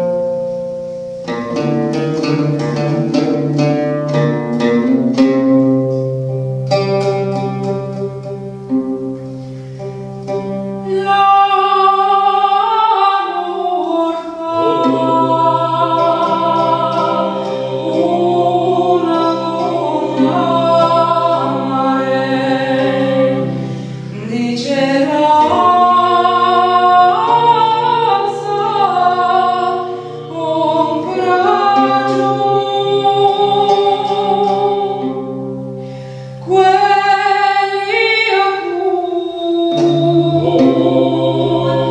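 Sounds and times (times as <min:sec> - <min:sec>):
lute plucked: 0:00.0 - 0:41.9
woman singing: 0:10.8 - 0:35.7, 0:36.4 - 0:41.9.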